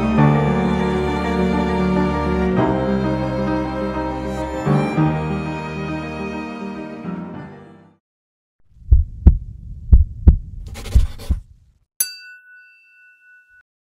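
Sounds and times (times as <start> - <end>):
background music: 0.0 - 8.0
heartbeat thumps: 8.8 - 11.6
bright ding: 12.0 - 13.6.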